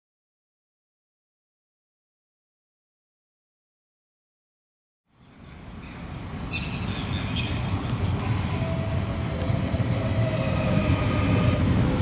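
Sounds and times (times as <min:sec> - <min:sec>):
train rumbling: 0:05.2 - 0:12.0
train wheel squeals: 0:05.9 - 0:12.0.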